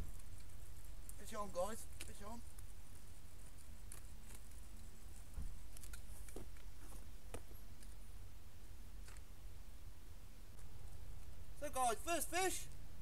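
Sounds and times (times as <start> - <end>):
wind rumbling on microphone: 0.0 - 7.9
low thump: 5.3 - 5.6.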